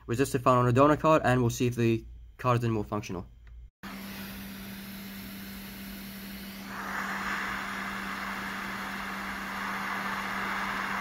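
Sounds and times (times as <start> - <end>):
constant low hum: 0.0 - 3.7
hot air blower hissing: 3.8 - 11.0.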